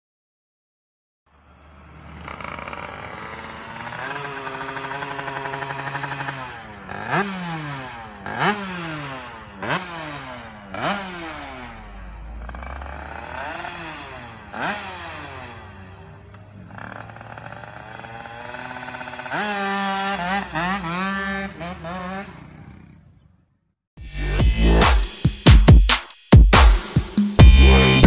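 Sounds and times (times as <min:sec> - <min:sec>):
two-stroke motorcycle engine revving: 0:01.3 - 0:25.9, 0:26.5 - 0:28.0.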